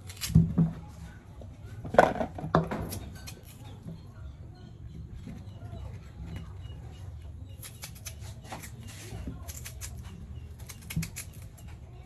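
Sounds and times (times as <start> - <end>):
knife scraping peel: 7.6 - 11.7.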